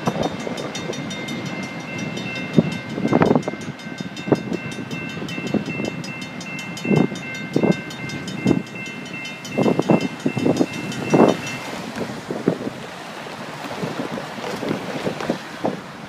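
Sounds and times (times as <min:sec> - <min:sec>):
crossing warning bell ringing: 0:00.0 - 0:13.6.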